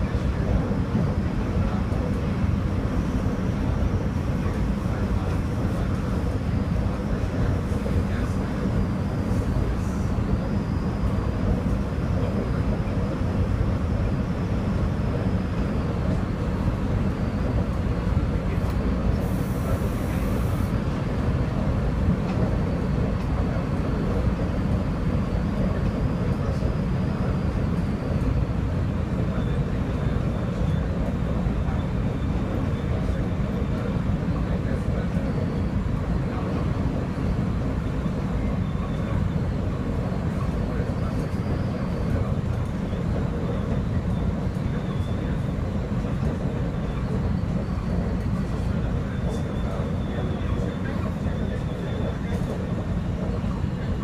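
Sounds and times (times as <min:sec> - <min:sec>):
faint high whine: 0:00.0 - 0:20.9
train wheels rumbling on rails: 0:00.0 - 0:54.0.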